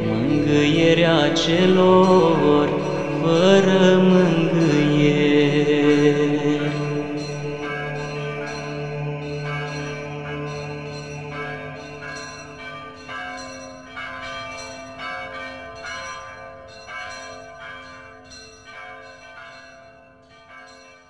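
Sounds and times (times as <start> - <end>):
low held tone: 0.0 - 12.9
bells ringing: 0.0 - 21.0.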